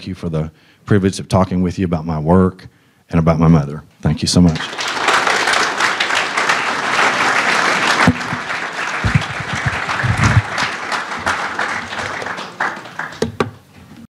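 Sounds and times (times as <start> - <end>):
audience applauding: 4.4 - 13.5.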